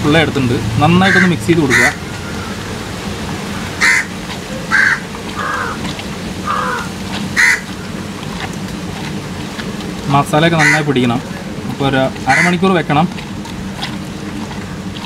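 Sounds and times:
crows cawing: 0:01.0 - 0:08.0, 0:10.5 - 0:11.0, 0:12.3 - 0:12.6.

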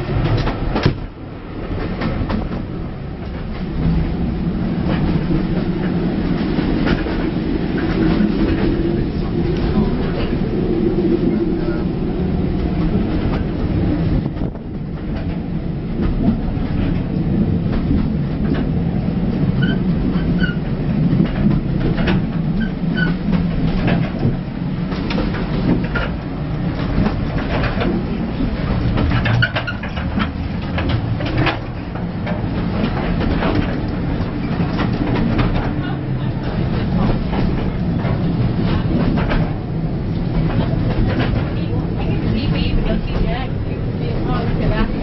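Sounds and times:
wheels rumbling on track: 0:00.0 - 0:45.0.

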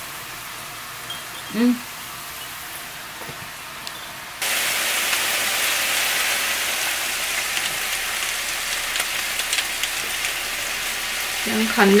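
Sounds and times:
chicken sizzling in a pan: 0:04.4 - 0:12.0.

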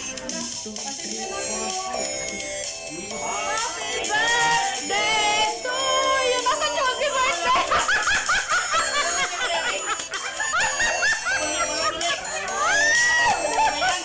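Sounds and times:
background music: 0:00.0 - 0:14.0
person laughing: 0:07.4 - 0:14.0.

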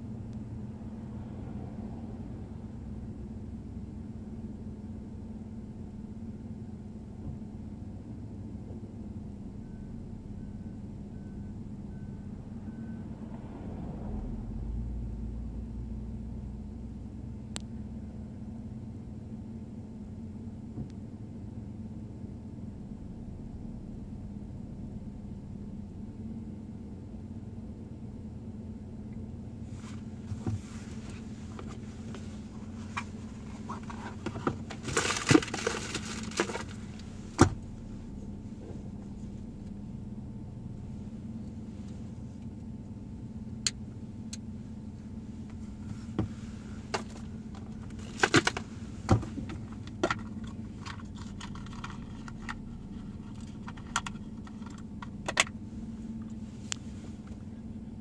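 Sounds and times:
car engine idling: 0:00.0 - 0:58.0
sharp clicks and rattling: 0:32.8 - 0:37.6, 0:46.9 - 0:55.6.

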